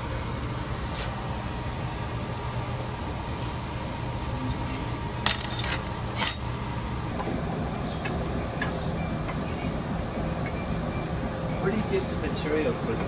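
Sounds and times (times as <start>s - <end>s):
steady low hum: 0.0s - 13.0s
metal tools clinking on metal: 5.2s - 6.7s.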